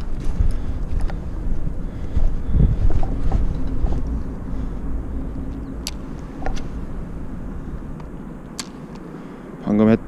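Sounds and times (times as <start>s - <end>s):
traffic rumbling on bridge: 0.0s - 10.0s
sharp clicks: 5.5s - 6.7s, 8.0s - 9.1s.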